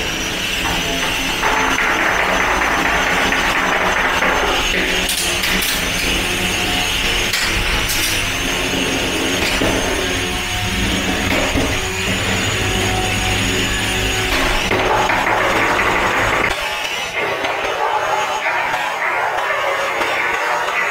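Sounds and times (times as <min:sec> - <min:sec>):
spinning weapon motor whining: 0:00.0 - 0:20.9.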